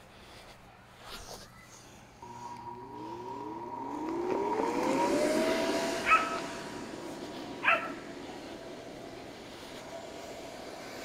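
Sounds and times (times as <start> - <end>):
inflator blower motor whine: 2.2 - 11.0
rush of air: 2.2 - 11.0.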